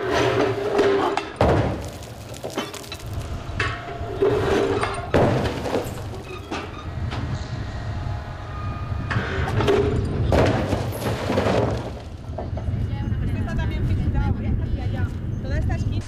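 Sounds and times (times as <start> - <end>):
heavy machinery rumble: 0.0 - 15.6
concrete blocks crashing: 0.2 - 3.7, 4.7 - 6.5, 10.3 - 12.4.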